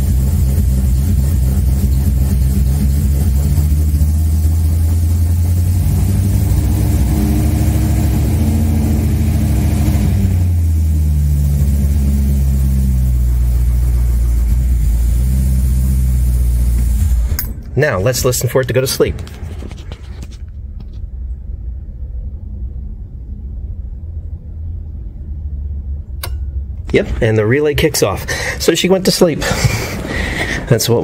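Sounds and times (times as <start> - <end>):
car engine idling: 0.0 - 31.0.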